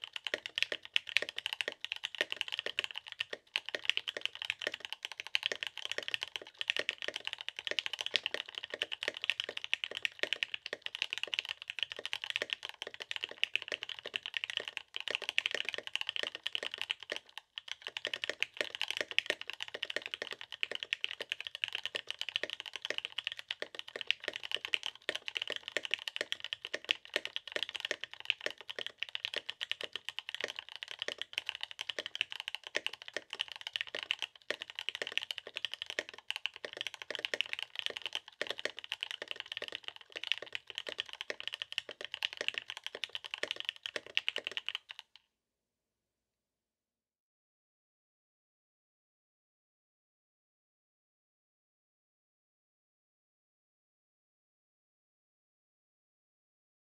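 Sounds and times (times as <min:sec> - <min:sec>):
mechanical keyboard typing: 0:00.0 - 0:45.2.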